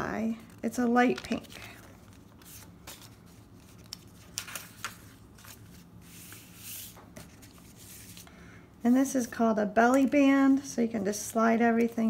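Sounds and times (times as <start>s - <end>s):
paper brushing rustle: 1.2s - 8.3s
paper rustling and tapping: 2.4s - 5.6s.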